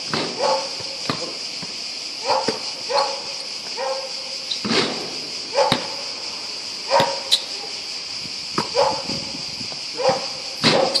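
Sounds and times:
cicadas buzzing: 0.0 - 11.0
short loud calls: 2.2 - 8.0.

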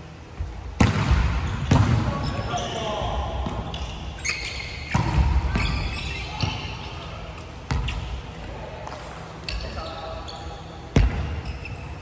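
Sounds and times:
volleyball hits echoing: 0.7 - 3.8, 4.8 - 6.7.

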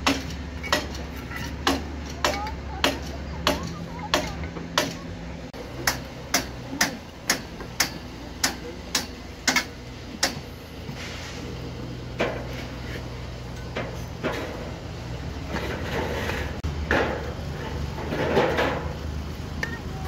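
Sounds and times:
trowel scraping mortar: 15.5 - 16.6.

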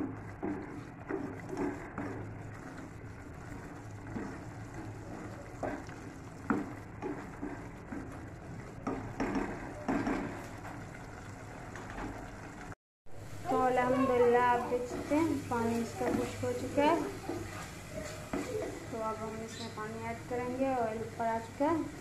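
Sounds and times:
spatula scraping and knocking pot: 14.7 - 19.7.

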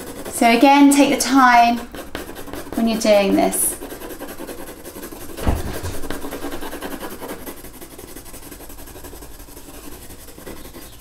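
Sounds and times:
pencil scratching on paper: 0.0 - 11.0
low thump: 5.4 - 6.3.

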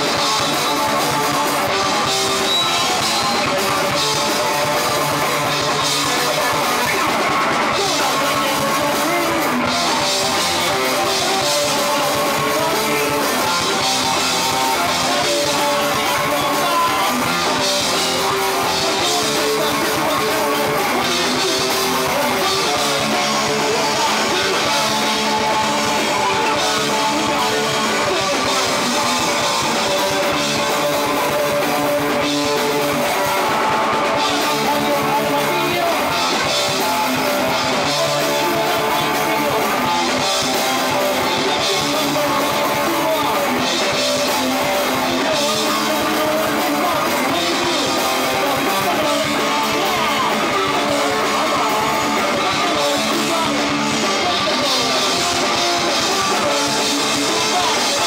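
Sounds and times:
drums: 0.0 - 58.0
electric guitar: 0.0 - 58.0.

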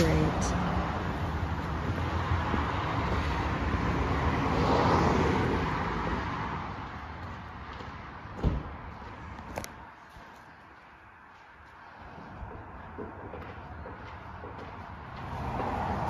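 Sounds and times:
car passing: 0.0 - 16.0.

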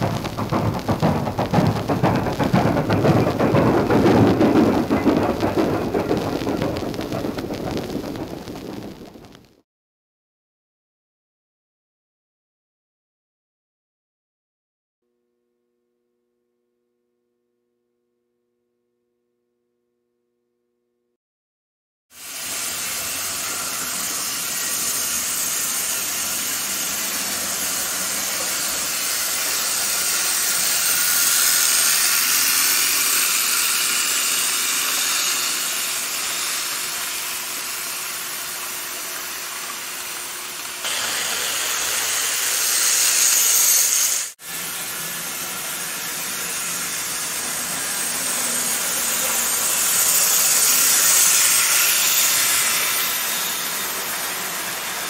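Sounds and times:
model train motors whirring: 22.2 - 55.0.

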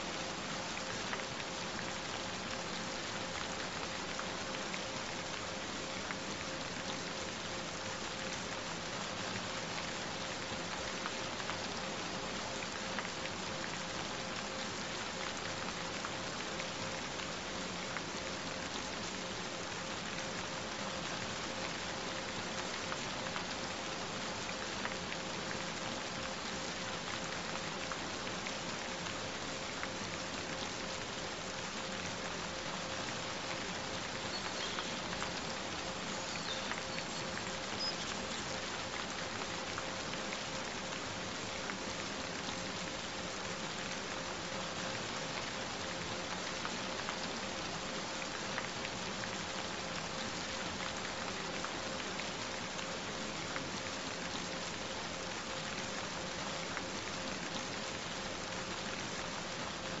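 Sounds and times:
steady rain hiss: 0.0 - 60.0
raindrop ticks: 33.5 - 40.6.

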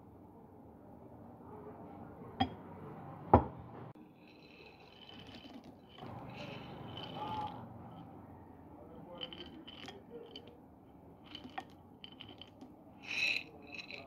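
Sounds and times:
peanuts rattling in glass bottle: 4.0 - 7.6, 9.1 - 10.5, 11.2 - 14.0.

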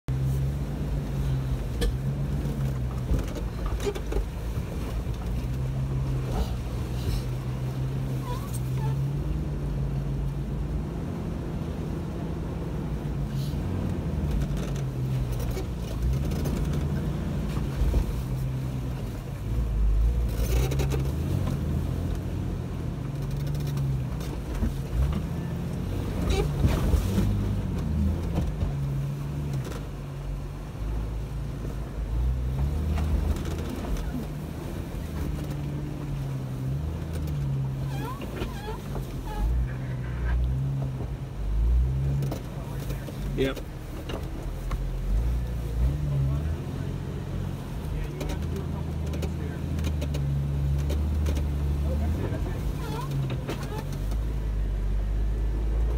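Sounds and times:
off-road vehicle engine crawling: 0.0 - 55.9
tires knocking on rocks: 14.1 - 19.0, 47.8 - 54.5.

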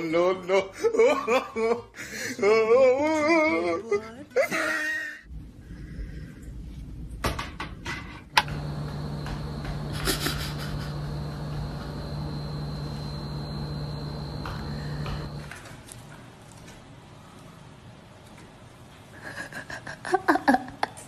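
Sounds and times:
appliance electrical hum: 4.5 - 21.0.

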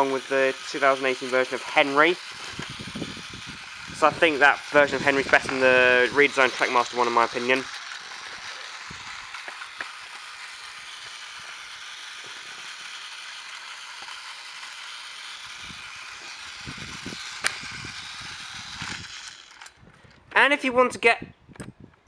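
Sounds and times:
toy train motor whirring: 0.0 - 20.5
sharp click: 17.4 - 17.7.

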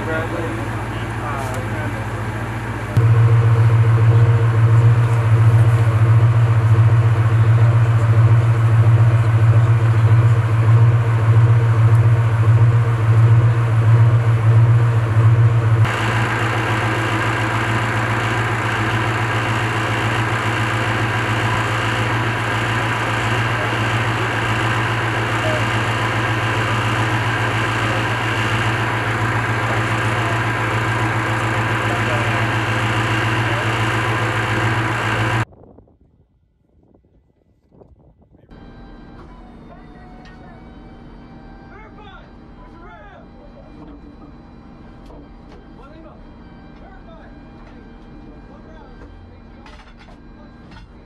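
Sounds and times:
steady high whine: 0.0 - 35.5
vehicle engine idling: 0.0 - 35.5.

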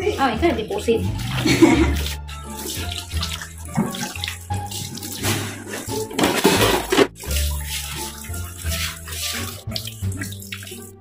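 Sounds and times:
tap water splashing: 0.2 - 11.0.

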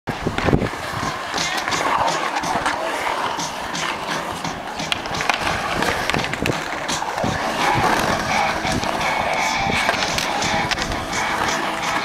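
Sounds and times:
skateboard clacks: 0.1 - 12.0
skateboard wheels rolling on concrete: 0.1 - 12.0.

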